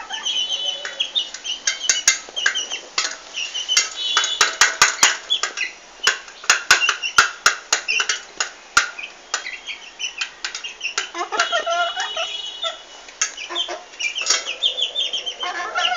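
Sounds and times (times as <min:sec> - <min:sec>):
chicks cheeping and clucking: 0:00.0 - 0:08.2, 0:08.9 - 0:15.9
beaks pecking on tiled floor: 0:00.0 - 0:15.9.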